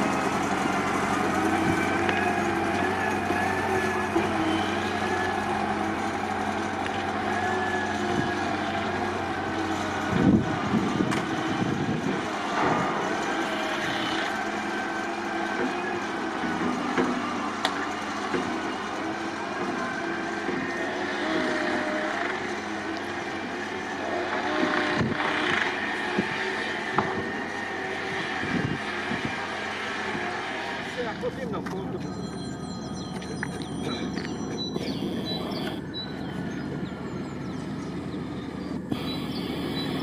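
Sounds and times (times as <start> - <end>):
tram running on track: 0.0 - 40.0
held tones: 13.2 - 14.4, 38.9 - 40.0.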